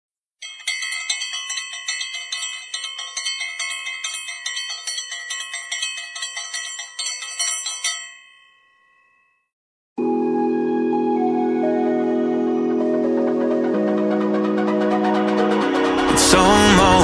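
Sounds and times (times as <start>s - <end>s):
bright bell-like chime jingle: 0.4s - 9.5s.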